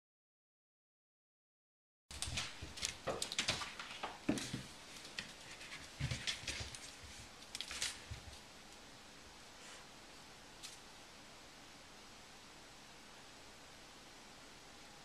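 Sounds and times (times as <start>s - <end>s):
cat paws tapping on tile floor: 2.1s - 8.4s.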